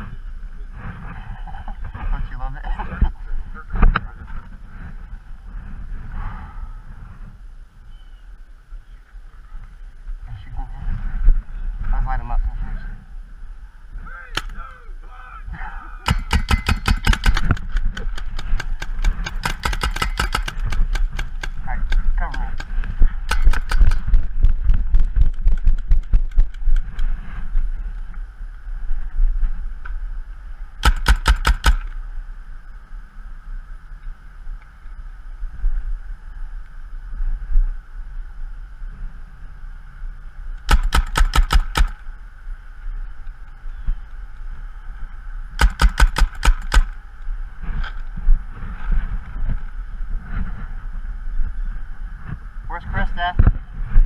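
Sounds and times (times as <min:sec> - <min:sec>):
paintball markers firing: 0:16.1 - 0:27.0, 0:30.8 - 0:32.0, 0:40.6 - 0:42.0, 0:45.6 - 0:47.0.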